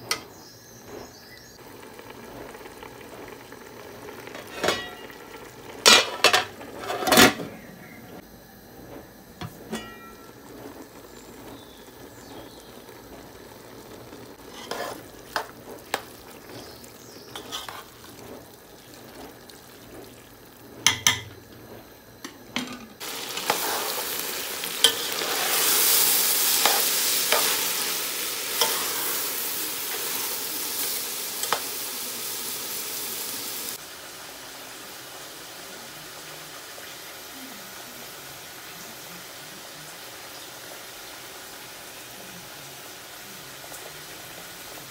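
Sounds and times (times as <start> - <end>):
mince sizzling: 0.0 - 44.9
metal spoon scraping a pot: 6.1 - 7.4, 14.4 - 16.6, 17.3 - 18.4
spoon clinking against pot: 9.7 - 10.3.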